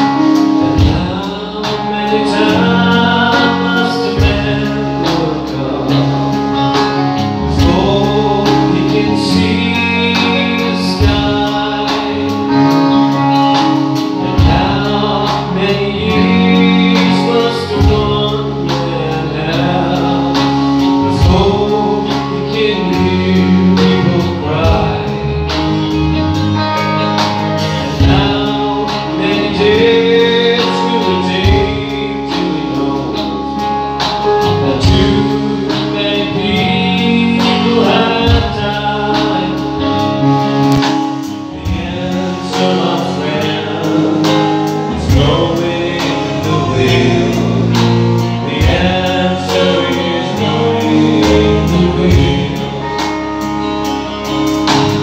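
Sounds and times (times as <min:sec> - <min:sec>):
drum kit beat: 0:00.0 - 0:55.0
electric bass: 0:00.0 - 0:55.0
keyboard: 0:00.0 - 0:55.0
man singing into a microphone: 0:00.0 - 0:55.0.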